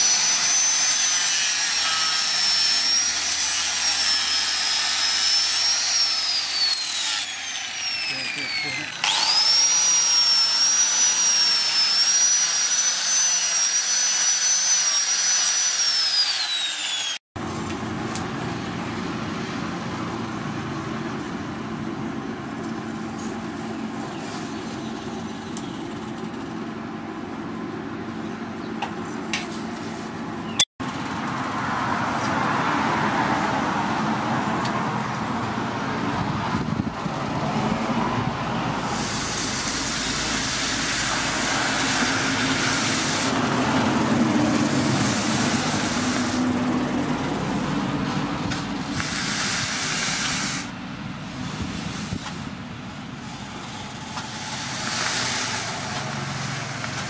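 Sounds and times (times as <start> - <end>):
angle grinder grinding steel: 0.0 - 17.2, 38.8 - 46.6, 53.2 - 57.0
hot metal hissing in water: 38.8 - 43.4, 44.9 - 46.5, 49.0 - 50.7, 54.3 - 56.9.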